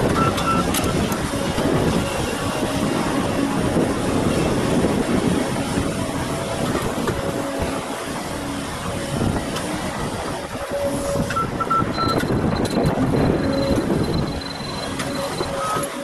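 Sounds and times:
bulldozer working: 0.0 - 16.0
excavator diesel engine under load: 0.0 - 16.0
machine warning alarm beeping: 0.1 - 1.2, 10.7 - 16.0.

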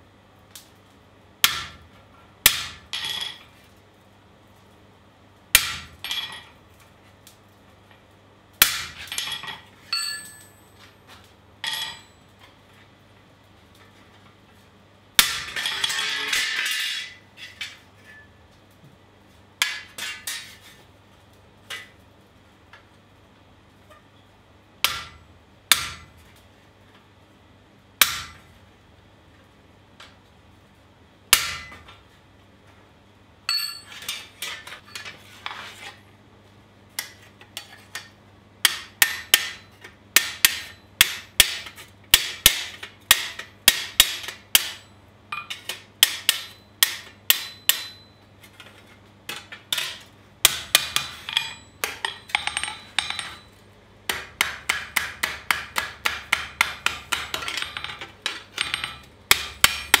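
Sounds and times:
hammer striking metal on anvil: 8.6 - 10.8, 15.2 - 15.9, 24.8 - 26.1, 28.0 - 28.4, 31.3 - 31.9, 33.5 - 34.2, 38.6 - 48.2, 49.8 - 53.5, 54.1 - 60.0.

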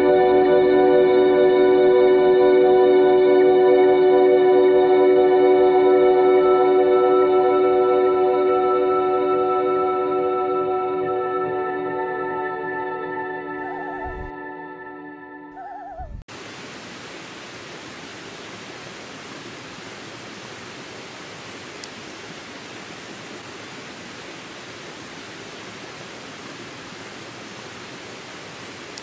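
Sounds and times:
ambient music: 0.0 - 15.9
stream rushing over rocks: 16.3 - 29.0.

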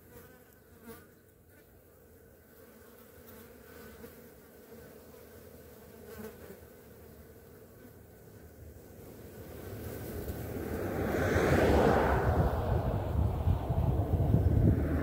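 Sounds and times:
flies buzzing: 0.0 - 12.0.

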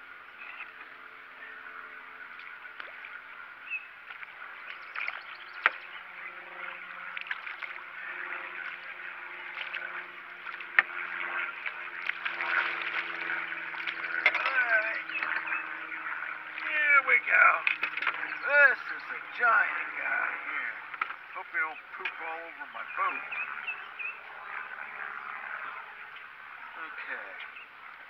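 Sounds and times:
water splashing and sloshing: 2.3 - 5.9, 6.8 - 15.4, 17.6 - 18.3.

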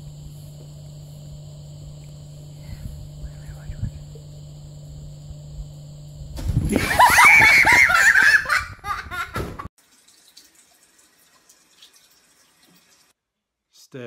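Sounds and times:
faint steady hum: 0.0 - 9.2
person laughing loudly: 6.7 - 9.7.

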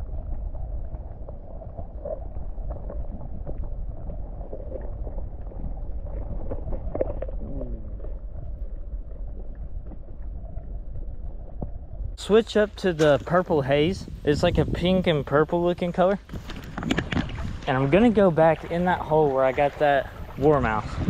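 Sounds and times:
small underwater clicks and knocks: 0.0 - 7.4, 8.0 - 12.2, 16.2 - 17.8
underwater creek gurgling: 0.0 - 21.0.

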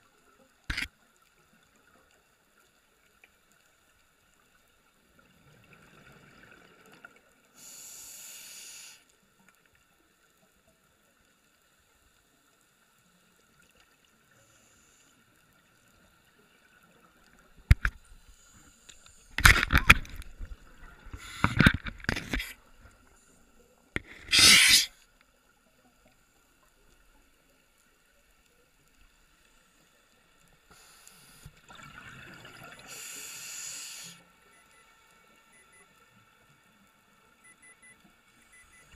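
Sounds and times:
scuba regulator breath hiss: 7.6 - 9.1, 24.0 - 25.0, 30.7 - 31.5, 32.8 - 34.3
shark biting camera housing: 19.4 - 20.3.

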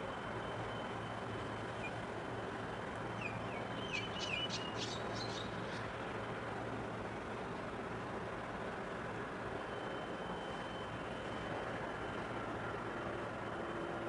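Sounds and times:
low engine rumble: 0.0 - 14.0
bird chirping: 3.2 - 5.8.

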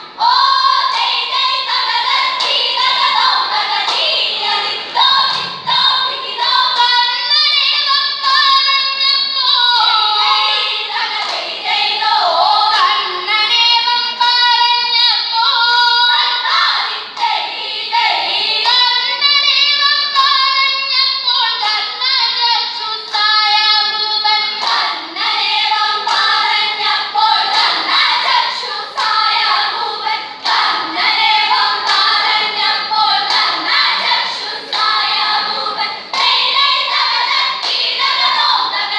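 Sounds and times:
girls singing together: 0.0 - 38.9
sharp hand claps: 0.8 - 5.9, 10.5 - 11.5, 12.7 - 13.0, 24.5 - 25.4, 26.0 - 29.8, 30.4 - 30.8, 31.6 - 35.5, 36.1 - 38.8.

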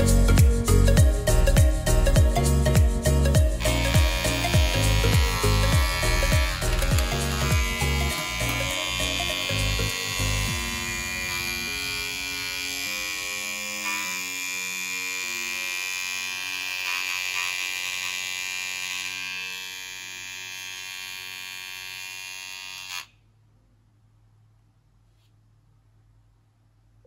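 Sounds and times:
quiet background music: 0.0 - 19.6
hair trimmer buzzing: 3.4 - 23.1.

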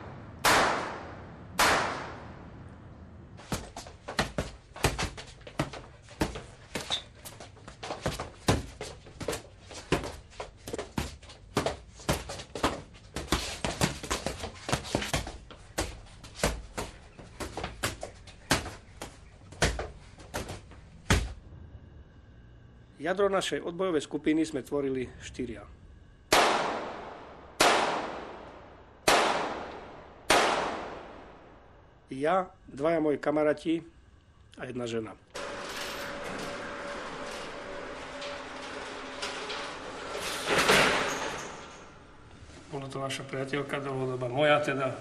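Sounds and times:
loud sharp bangs: 0.0 - 2.8, 26.3 - 31.5.

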